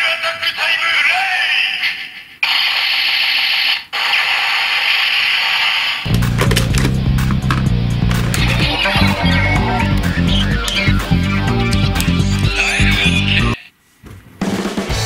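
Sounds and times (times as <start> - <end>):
music with heavy bass beat: 6.1 - 13.6, 14.7 - 15.0.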